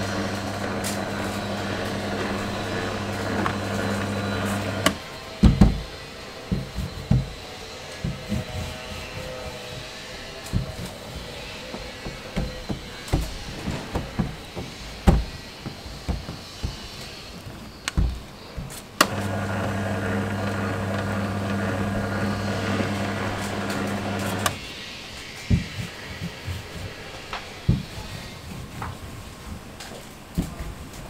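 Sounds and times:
dough sheeter motor humming: 0:00.0 - 0:05.6, 0:19.0 - 0:24.6.

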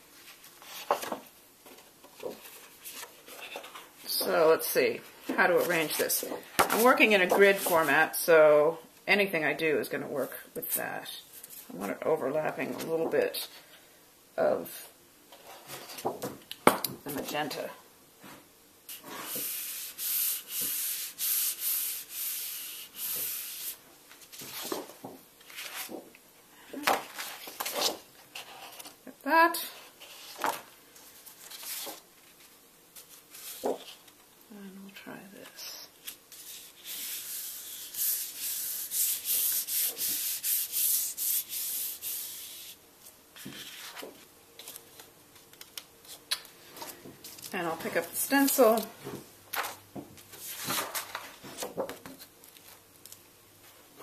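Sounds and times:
paper rustling: 0:00.2 - 0:03.9, 0:23.0 - 0:26.1, 0:26.9 - 0:29.0, 0:30.0 - 0:34.2, 0:43.4 - 0:48.9, 0:49.5 - 0:52.8
hand rubbing paper hissing: 0:18.9 - 0:23.8, 0:36.0 - 0:42.8.

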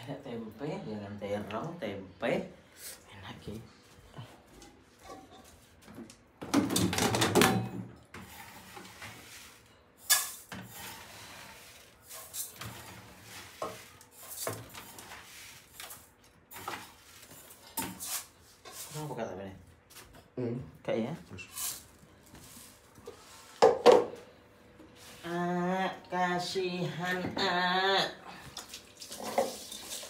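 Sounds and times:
cookware and utensils clattering: 0:04.9 - 0:19.3, 0:23.0 - 0:24.2, 0:28.6 - 0:30.0.

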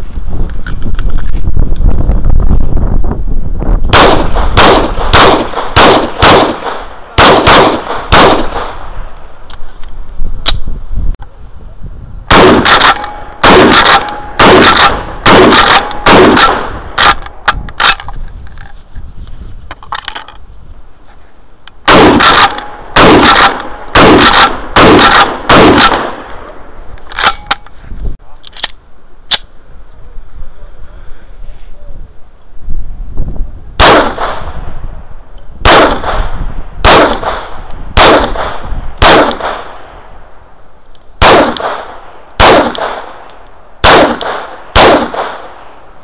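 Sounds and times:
shotgun shots with echo: 0:03.9 - 0:08.8, 0:12.3 - 0:17.2, 0:21.9 - 0:26.3, 0:33.8 - 0:34.6, 0:35.6 - 0:39.8, 0:41.2 - 0:43.2, 0:43.8 - 0:45.5.

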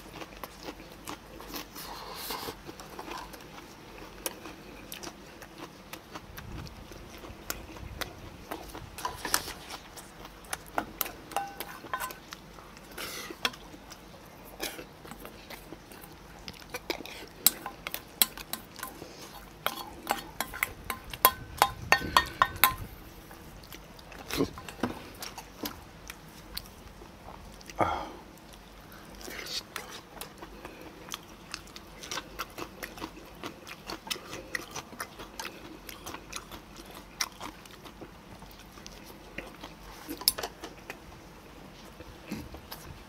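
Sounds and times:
person chewing: 0:00.0 - 0:43.0
utensils clinking on steel bowls: 0:11.3 - 0:12.2, 0:19.6 - 0:22.9.

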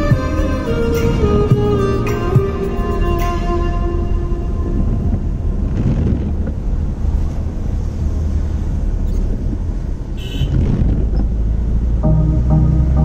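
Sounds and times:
engine and tyre rumble: 0:00.0 - 0:13.0
windscreen wiper swish: 0:04.8 - 0:09.8, 0:10.4 - 0:11.4.

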